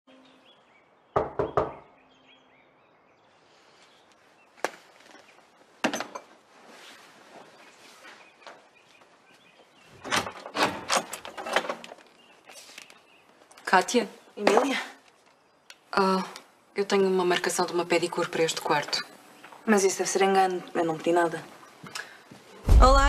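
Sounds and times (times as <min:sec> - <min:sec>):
knocks on a wooden door: 0:01.2 - 0:01.8.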